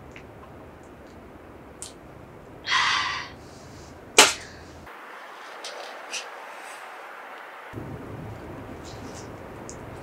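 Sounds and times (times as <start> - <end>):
person exhaling: 2.7 - 4.8.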